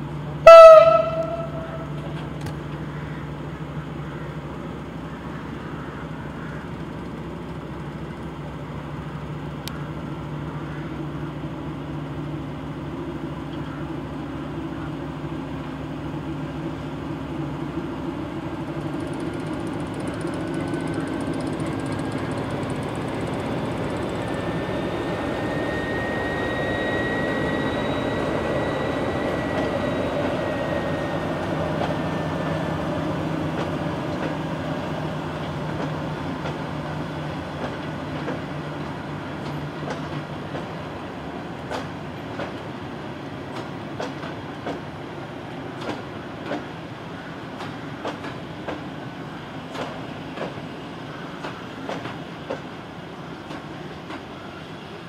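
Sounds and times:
diesel locomotive engine running: 0:00.0 - 0:55.0
thin high whine: 0:23.9 - 0:32.9.

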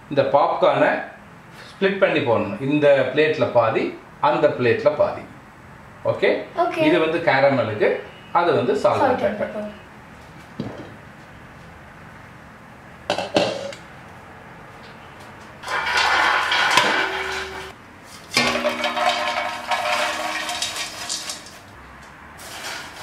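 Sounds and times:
popcorn poured into dishes: 0:15.6 - 0:21.8, 0:22.4 - 0:23.0
metallic ring: 0:16.7 - 0:17.8.

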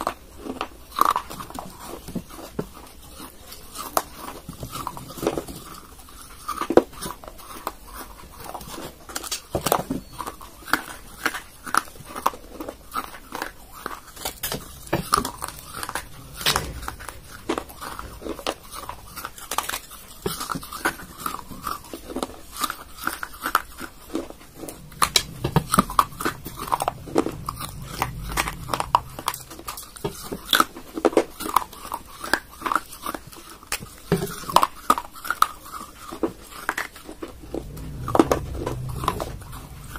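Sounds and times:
chewing: 0:00.0 - 0:39.9.

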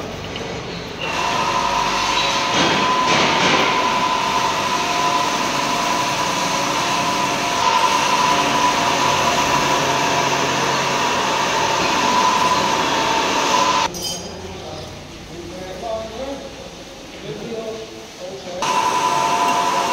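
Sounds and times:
machine whining: 0:00.7 - 0:13.9, 0:18.6 - 0:19.9.

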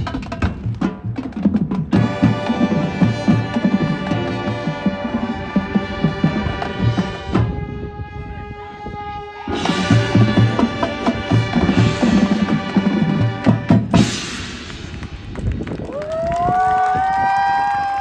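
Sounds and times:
marching band percussion hits: 0:00.0 - 0:07.6, 0:09.5 - 0:15.6
brass held chord: 0:02.0 - 0:13.8.

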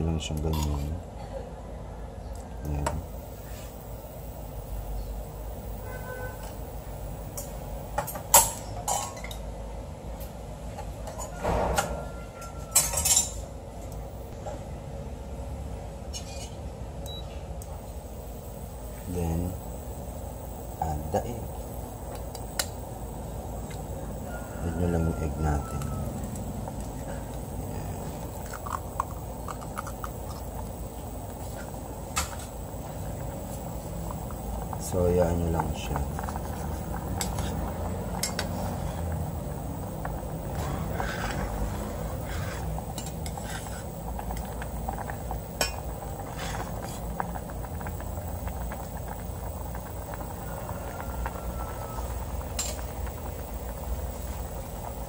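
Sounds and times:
dishes and utensils clattering: 0:11.0 - 0:13.4
pot of noodles bubbling: 0:17.1 - 0:55.0.

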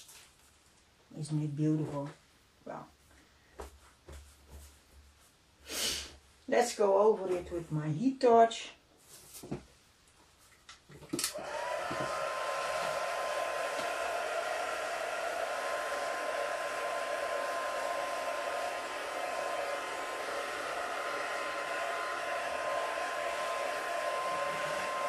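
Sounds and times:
heat gun fan whining: 0:11.1 - 0:25.0
heat gun switch clicks: 0:11.2 - 0:11.4.

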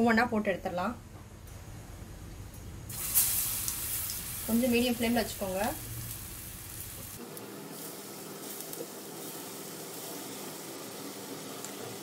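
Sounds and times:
oil sizzling while deep-frying: 0:02.9 - 0:12.0.

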